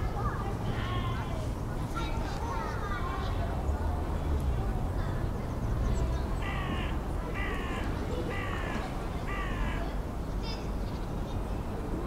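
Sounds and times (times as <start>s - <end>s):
bird calling: 6.4s - 9.9s.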